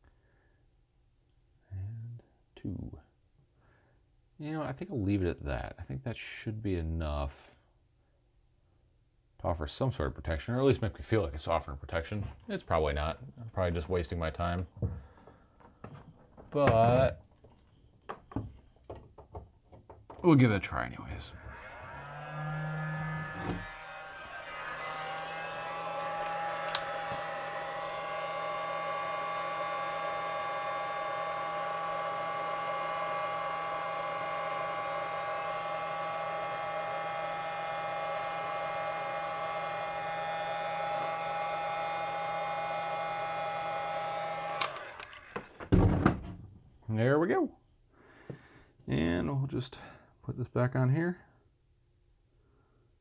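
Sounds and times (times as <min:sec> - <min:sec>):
heat gun fan whine: 0:20.3 - 0:45.7
heat gun click: 0:23.4 - 0:31.4, 0:43.6 - 0:45.5.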